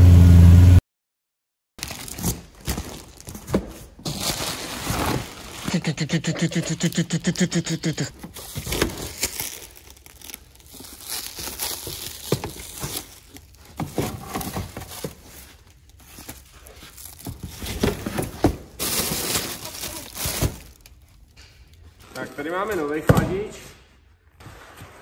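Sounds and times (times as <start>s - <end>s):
plastic and cardboard crinkling: 1.8s - 5.8s, 8.2s - 23.1s.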